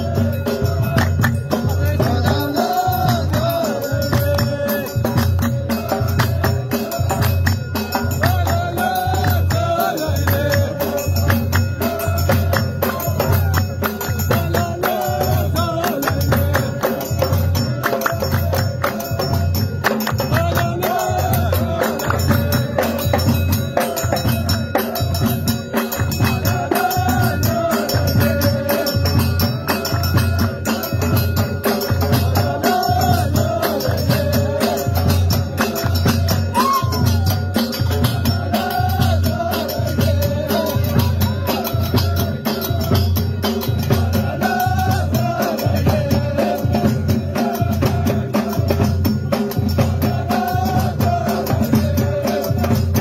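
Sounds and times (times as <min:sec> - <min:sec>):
frame drums beating: 0:00.0 - 0:53.0
voices singing: 0:00.0 - 0:53.0
hand-clapping: 0:01.0 - 0:03.5, 0:04.1 - 0:23.2, 0:35.6 - 0:37.2.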